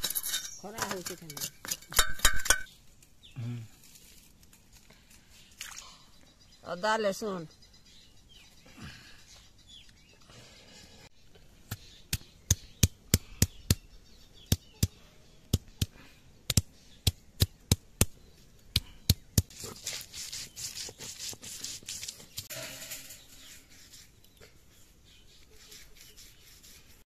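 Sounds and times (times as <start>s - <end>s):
stone scraping and grinding: 0.0s - 2.7s, 19.5s - 24.3s.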